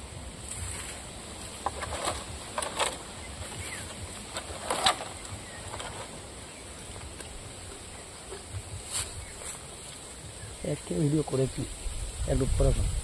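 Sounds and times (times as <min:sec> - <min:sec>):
leafy twigs rustling: 0:00.0 - 0:13.0
wind rumble on microphone: 0:11.3 - 0:13.0.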